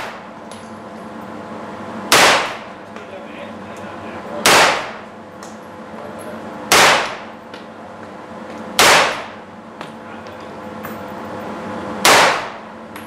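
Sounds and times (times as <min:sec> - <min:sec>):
gunshots echoing indoors: 0:02.1 - 0:02.6, 0:04.4 - 0:05.0, 0:06.7 - 0:07.3, 0:08.8 - 0:09.3, 0:12.0 - 0:12.6.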